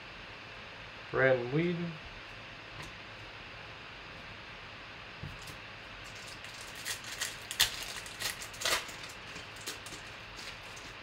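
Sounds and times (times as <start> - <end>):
foil wrapper tearing and crinkling: 5.4 - 11.0.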